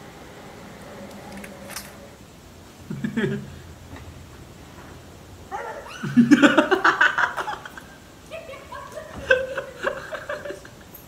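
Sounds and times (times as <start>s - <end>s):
man laughing hard: 2.9s - 3.6s, 6.0s - 8.0s, 9.2s - 10.8s.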